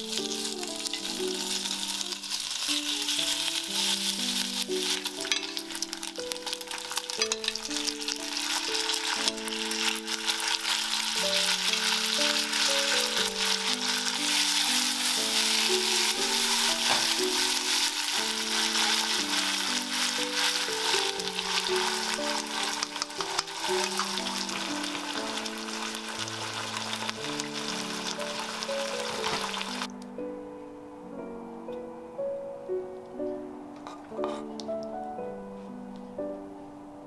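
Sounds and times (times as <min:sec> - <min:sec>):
meat and vegetables sizzling: 0:00.0 - 0:29.9
soft background music: 0:00.0 - 0:37.0
utensils clicking against pan: 0:00.1 - 0:08.1, 0:18.1 - 0:24.2.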